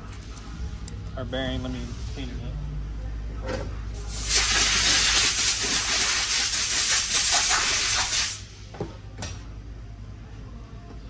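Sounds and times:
pressurized jet hissing: 4.1s - 8.5s.

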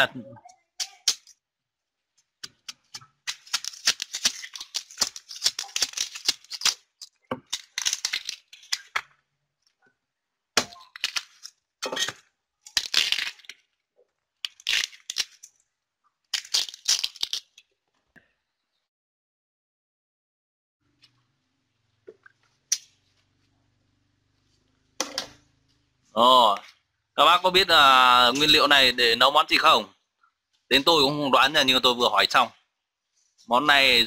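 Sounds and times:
bamboo sheaths tearing: 2.8s - 9.1s, 10.6s - 11.6s, 12.7s - 13.6s, 14.4s - 15.5s, 16.3s - 17.6s.

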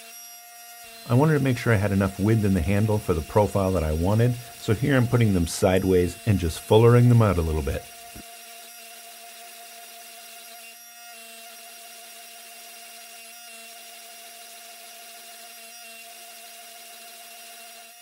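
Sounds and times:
faint machine whine: 0.9s - 8.2s.

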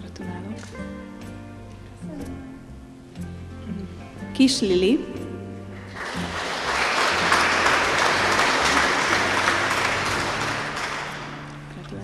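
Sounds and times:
audience applauding: 5.8s - 11.7s.

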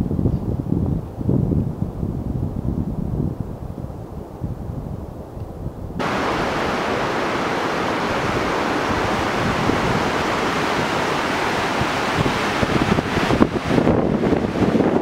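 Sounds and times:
low wind rumble: 0.0s - 15.0s
river rapids rushing over boulders: 6.0s - 15.0s.

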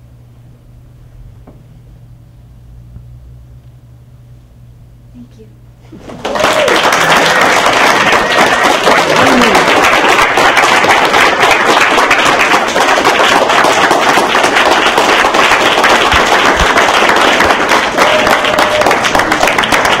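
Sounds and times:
audience clapping: 5.9s - 20.0s.

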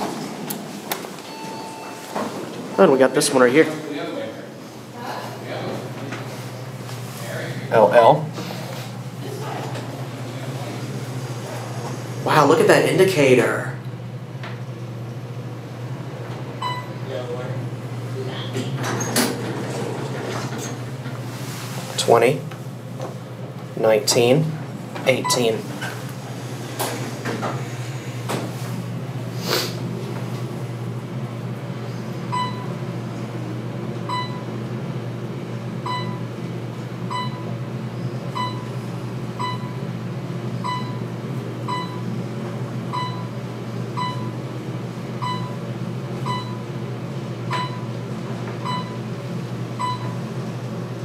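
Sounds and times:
elevator ride hum: 0.0s - 51.0s
short electronic beeps: 1.3s - 2.1s.

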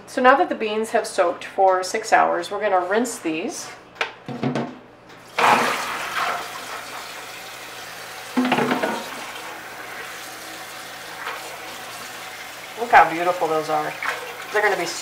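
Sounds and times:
water running into sink: 5.3s - 15.0s.

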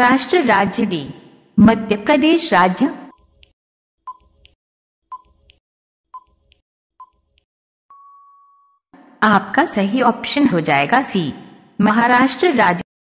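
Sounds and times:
timer ticks: 3.1s - 5.6s, 6.2s - 7.5s.

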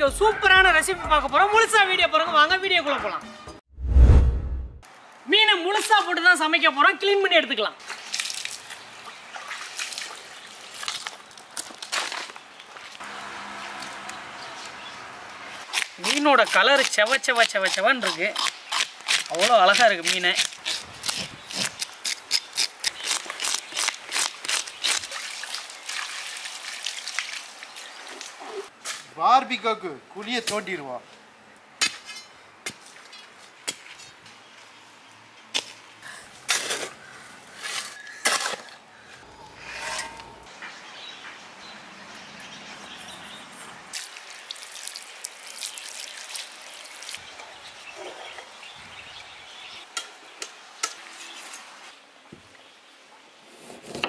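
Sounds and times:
water splashing on stone: 24.5s - 28.4s, 43.9s - 47.2s.

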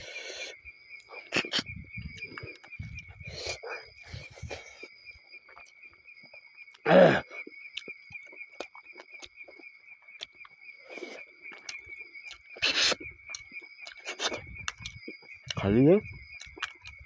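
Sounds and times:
crickets trilling: 0.0s - 17.0s
wet mouth eating clicks: 7.8s - 8.0s, 11.5s - 15.6s, 16.3s - 17.0s.

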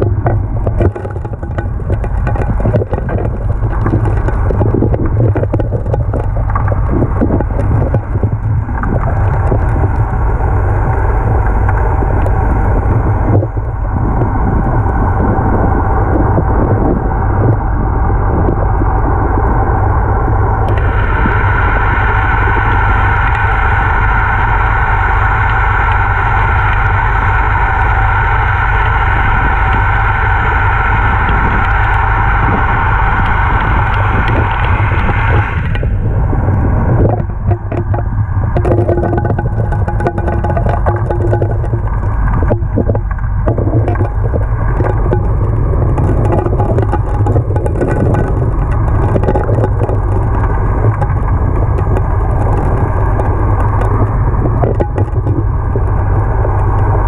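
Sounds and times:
gravel clicks and rattles: 0.0s - 10.2s, 37.0s - 57.0s
underwater engine and pump drone: 0.0s - 57.0s.

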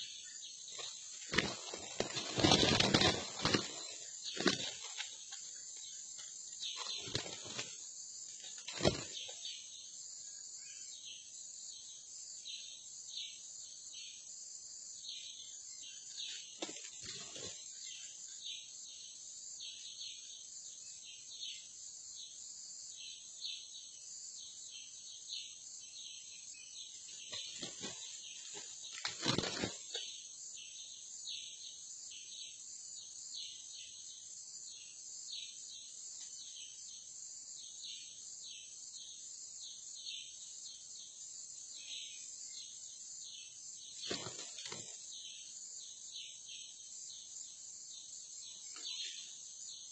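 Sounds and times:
forest insects chirping: 0.0s - 49.9s
wing flapping: 0.7s - 9.4s, 27.2s - 30.1s, 44.0s - 45.0s.

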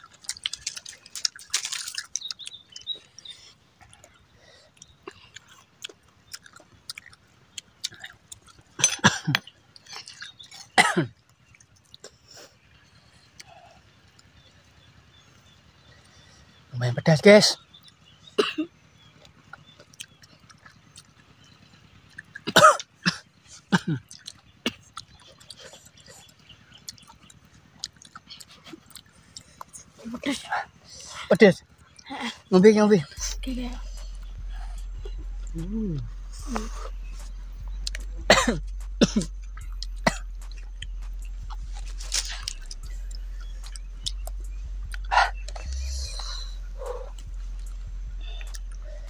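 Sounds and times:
person coughing: 8.8s - 9.4s, 10.8s - 11.1s, 18.4s - 18.7s, 22.5s - 24.0s, 38.2s - 39.4s, 40.0s - 40.2s.

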